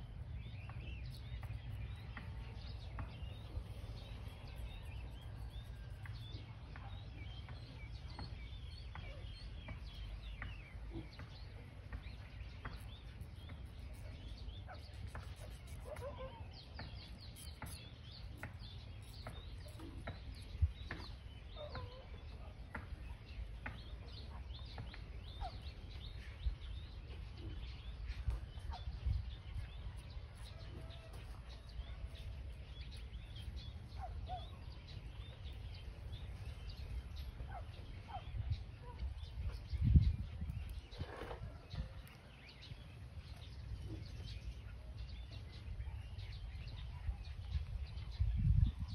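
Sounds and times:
birds chirping: 0.0 - 48.9
wind rumble on microphone: 0.0 - 48.9.

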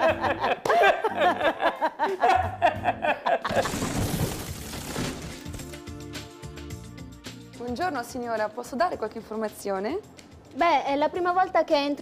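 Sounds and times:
group of people laughing: 0.0 - 3.8.

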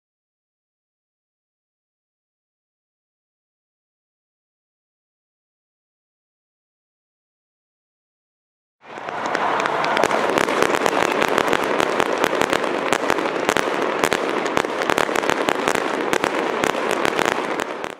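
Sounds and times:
fireworks crackling: 8.8 - 17.9.

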